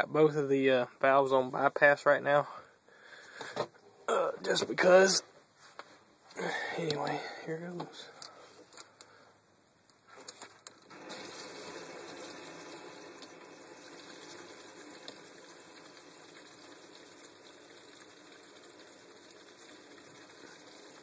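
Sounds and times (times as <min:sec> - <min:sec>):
water hissing through pipes: 0:10.9 - 0:21.0.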